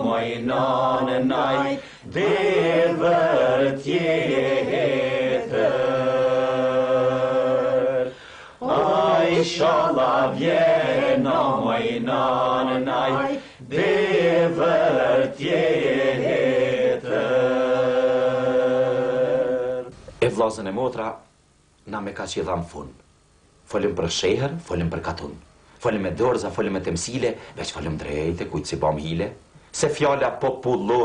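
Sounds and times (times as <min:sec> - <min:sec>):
singer breathing: 0:01.8 - 0:02.1, 0:08.1 - 0:08.6, 0:13.4 - 0:13.6
person singing folk song: 0:07.5 - 0:13.6.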